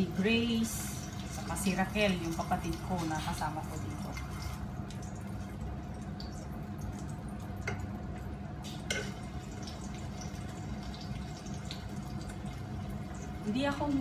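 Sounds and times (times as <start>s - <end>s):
fish sizzling in a pan: 8.6s - 14.0s.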